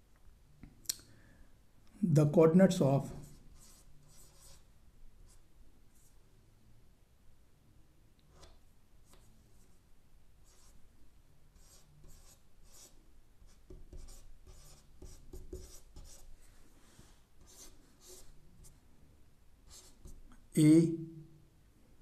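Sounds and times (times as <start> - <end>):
chalk scratching on a board: 3.2 - 4.7, 10.4 - 10.8, 11.6 - 16.3, 17.4 - 18.4, 19.7 - 20.2.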